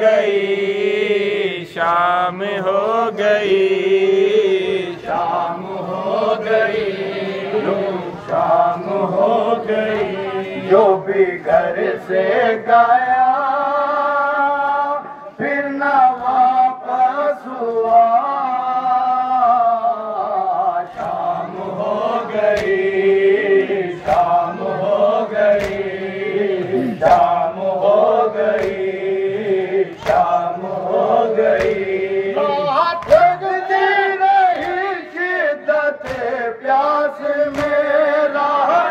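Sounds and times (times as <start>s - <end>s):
male voices chanting lament: 0.0s - 38.9s
hands slapping bare chests: 22.4s - 22.9s, 24.0s - 26.0s, 27.0s - 29.0s, 29.8s - 32.0s, 32.9s - 33.5s, 34.5s - 34.9s, 36.0s - 36.4s, 37.4s - 37.9s.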